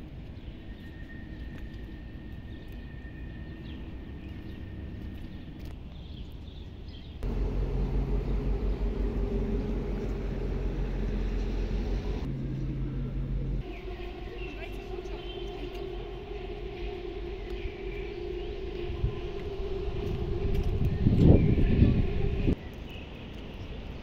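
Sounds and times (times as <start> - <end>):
outdoor city rumble: 0.0 - 24.0
boat engine rumble: 7.2 - 22.6.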